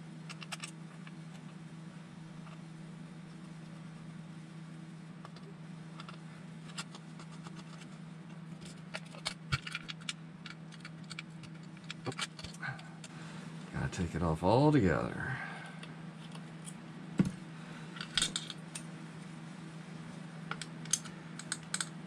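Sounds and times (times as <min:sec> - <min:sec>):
steady low hum: 0:00.0 - 0:22.0
small tools clicking and tapping: 0:00.3 - 0:01.2, 0:08.6 - 0:12.6, 0:20.5 - 0:22.0.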